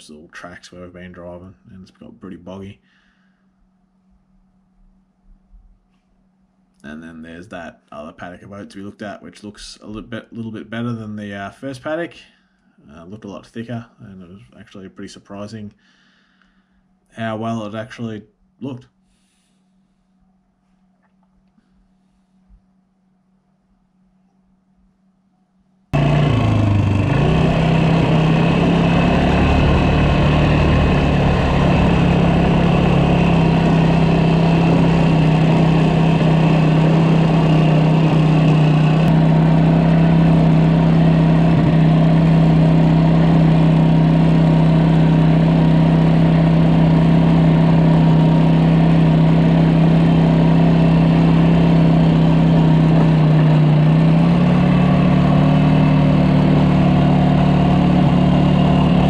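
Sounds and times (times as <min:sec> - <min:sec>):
vehicle engine humming: 0:25.9 - 0:59.0.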